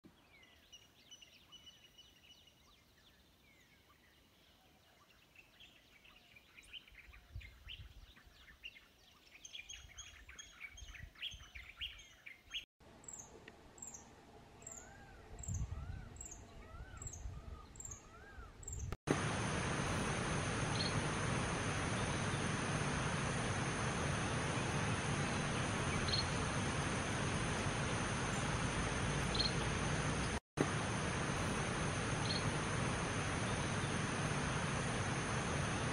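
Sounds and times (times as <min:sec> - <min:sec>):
loud steady hiss: 0:19.1 - 0:35.9
birds chirping and singing: 0:20.6 - 0:30.4.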